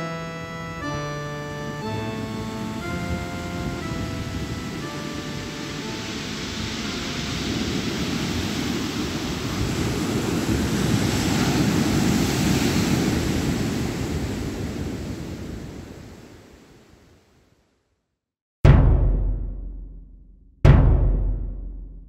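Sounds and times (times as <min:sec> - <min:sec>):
wind: 0:00.0 - 0:17.8
ocean surf breaking: 0:00.1 - 0:17.0.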